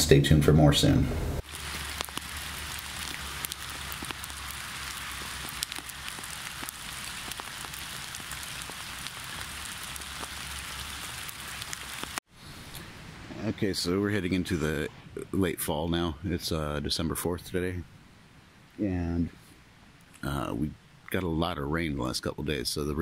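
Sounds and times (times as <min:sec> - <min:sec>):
steady rain falling: 0:01.4 - 0:17.8.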